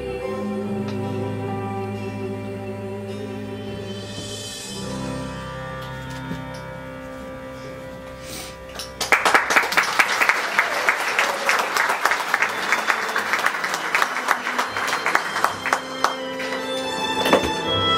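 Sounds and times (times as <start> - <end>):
soft instrumental music: 0.0 - 9.3, 12.4 - 17.9
audience applause: 9.0 - 17.6
held closing chord: 11.8 - 17.9.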